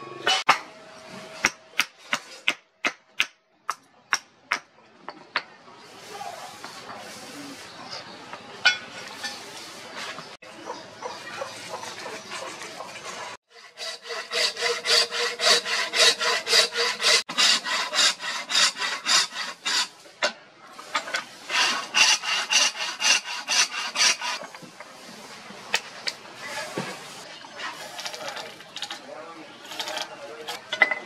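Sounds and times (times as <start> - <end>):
hand saw cutting wood: 11.7 - 20.0, 20.9 - 24.4.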